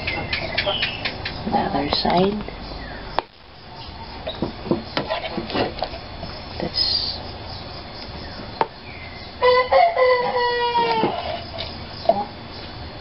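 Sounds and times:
rooster crowing: 9.4s - 11.6s.

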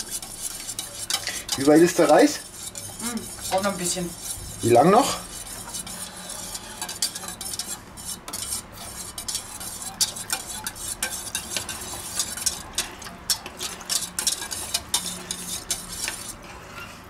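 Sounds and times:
fork whisking in a metal bowl: 0.0s - 17.0s.

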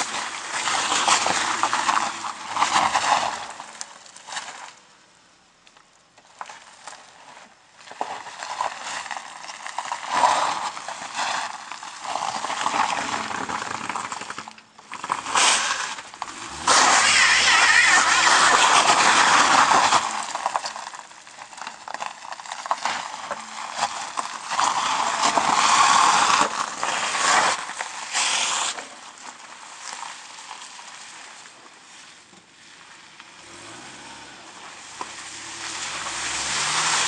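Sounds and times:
car engine accelerating: 0.0s - 3.9s, 12.0s - 20.9s, 33.0s - 37.0s
gravel spraying: 0.0s - 4.9s, 6.3s - 37.0s
tyres spinning on rock: 12.1s - 27.9s.

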